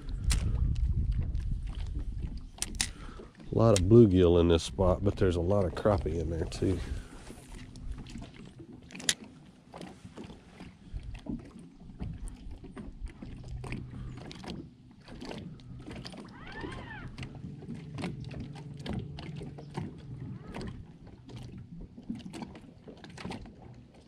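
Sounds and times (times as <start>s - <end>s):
fishing rod and reel clicks: 0.1s - 4.0s, 8.9s - 9.9s.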